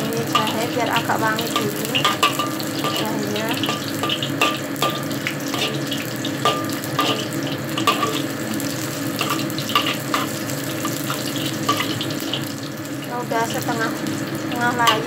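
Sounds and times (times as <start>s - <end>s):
ginger sizzling in hot oil: 0.0s - 15.0s
metal spatula clinking on wok: 0.2s - 8.2s.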